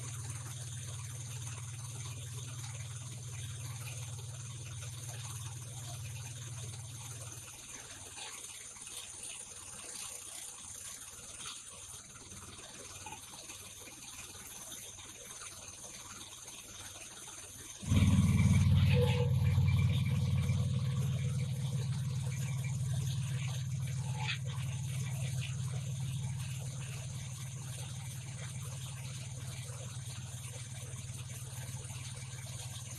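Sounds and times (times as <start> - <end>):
low hum: 0.0 - 7.9, 17.8 - 32.9.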